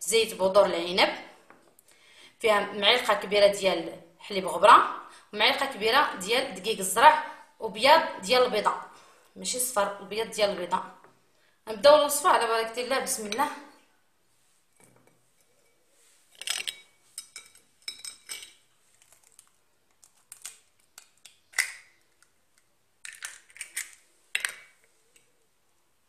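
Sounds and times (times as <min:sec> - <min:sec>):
spoons clinking against bowl: 0:16.4 - 0:18.6.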